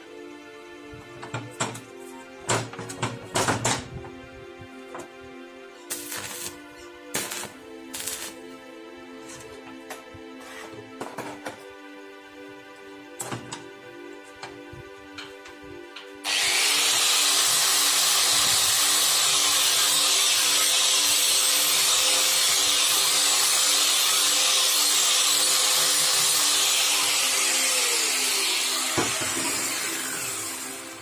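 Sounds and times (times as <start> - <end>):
angle grinder grinding metal: 16.2 - 31.0.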